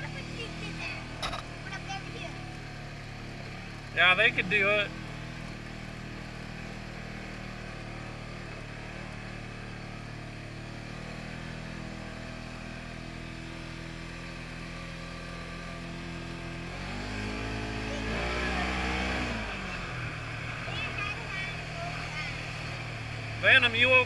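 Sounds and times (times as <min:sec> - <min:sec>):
off-road vehicle engine revving: 0:00.0 - 0:24.0.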